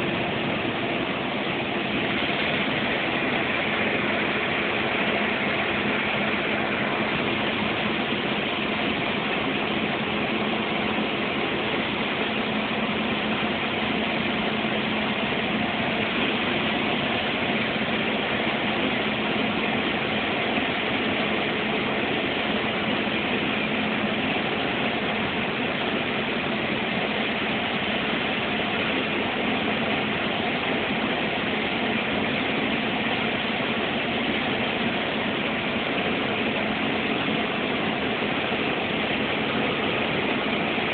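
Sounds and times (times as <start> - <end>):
bus engine and road drone: 0.0 - 40.9
faint constant hum: 0.0 - 40.9.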